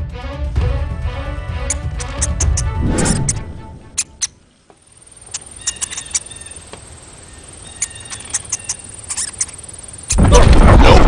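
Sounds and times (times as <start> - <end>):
short chirps and clicks: 1.6 - 4.4, 5.2 - 6.5, 7.6 - 10.2.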